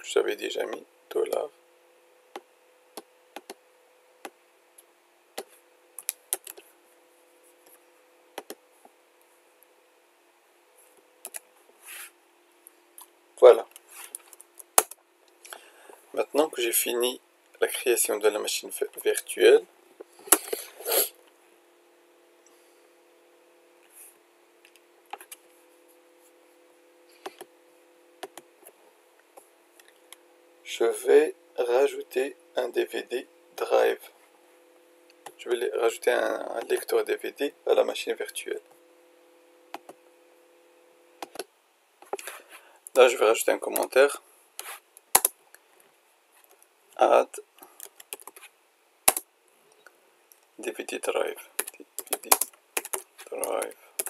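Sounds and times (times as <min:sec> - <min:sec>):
faint steady hum: 0:00.0 - 0:54.0
keyboard and mouse clicks: 0:02.4 - 0:03.6, 0:05.4 - 0:06.6, 0:08.4 - 0:08.6, 0:11.2 - 0:11.4, 0:41.2 - 0:42.3, 0:47.8 - 0:48.4, 0:51.6 - 0:54.0.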